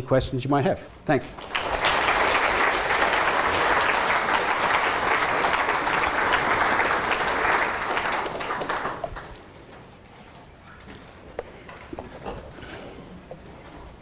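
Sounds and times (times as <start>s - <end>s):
audience applauding: 1.3s - 9.5s.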